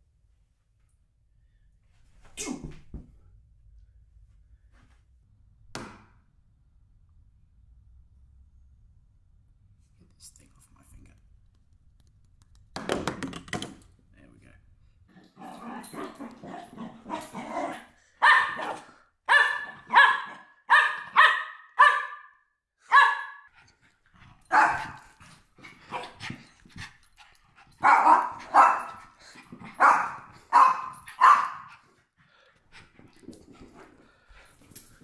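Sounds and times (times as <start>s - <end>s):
small dog barking: 15.6s - 23.5s, 24.5s - 25.1s, 25.9s - 26.2s, 27.8s - 29.0s, 29.8s - 31.8s.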